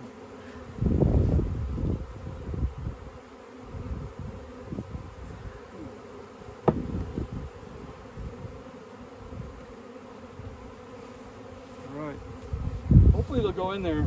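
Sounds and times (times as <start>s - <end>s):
bees buzzing: 0.0s - 14.0s
sharp knock: 6.6s - 7.0s.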